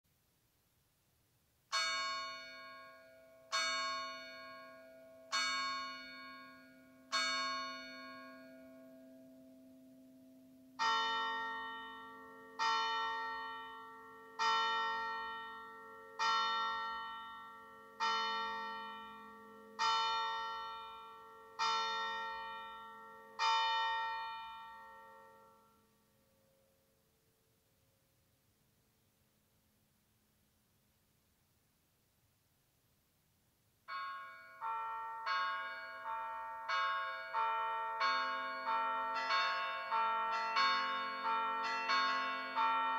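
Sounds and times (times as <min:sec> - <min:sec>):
church bells struck by hand: 0:01.7 - 0:25.8, 0:33.9 - 0:42.9.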